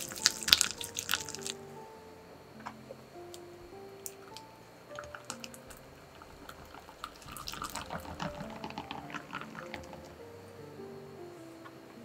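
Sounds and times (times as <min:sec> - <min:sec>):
whisk squelching in a glass bowl: 0:06.4 - 0:10.1.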